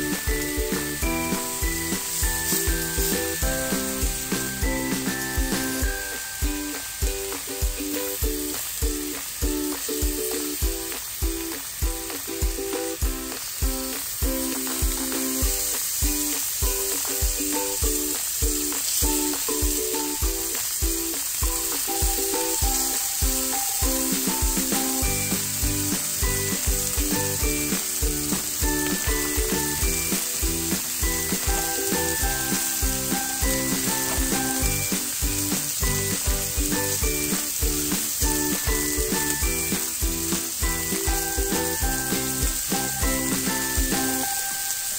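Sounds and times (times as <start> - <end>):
background music with steady beat: 0.0 - 44.9
meat and mushrooms sizzling: 0.0 - 44.9.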